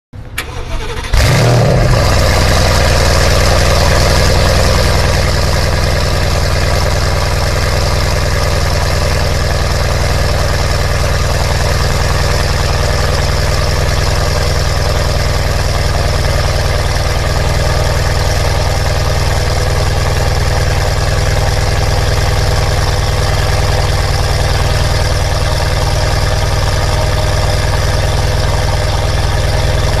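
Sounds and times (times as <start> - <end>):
starter motor cranking: 0.4 - 1.7
car engine idling loudly: 0.4 - 30.0.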